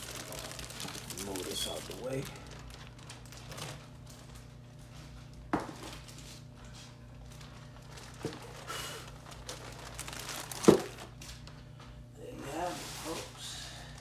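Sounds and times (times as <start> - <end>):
box and packaging handled: 0.0 - 3.8, 7.4 - 11.2
packaging rustle: 0.0 - 4.6, 7.2 - 11.6.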